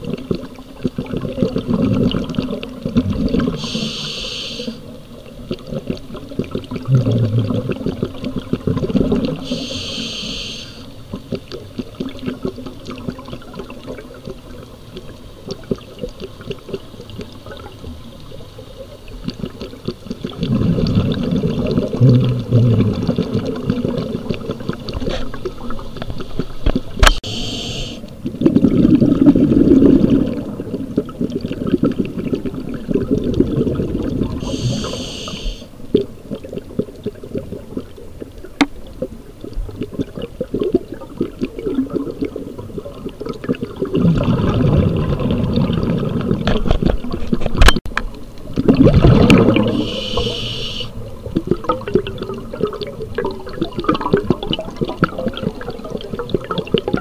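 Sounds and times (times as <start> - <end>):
exhaled bubbles gurgling: 0.0 - 47.7, 48.4 - 57.0
regulator inhalation hiss: 3.6 - 4.8, 9.5 - 10.9, 27.2 - 28.1, 34.4 - 35.7, 49.7 - 51.0.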